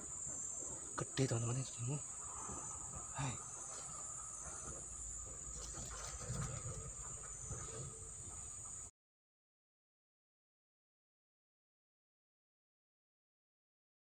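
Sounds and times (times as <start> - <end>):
insects buzzing: 0.0 - 8.9
soft low bumps: 0.0 - 8.9.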